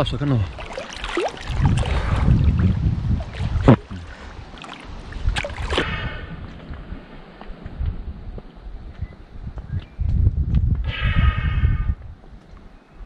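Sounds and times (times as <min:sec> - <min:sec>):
water sloshing and splashing: 0:00.0 - 0:07.4
dull water wash: 0:00.0 - 0:08.8.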